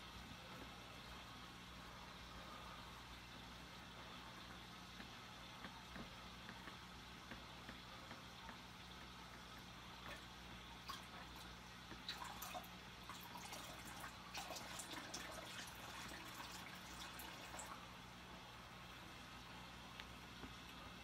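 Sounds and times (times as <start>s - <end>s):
steady low hum: 0.0s - 21.0s
water drips and small splashes: 4.3s - 18.2s.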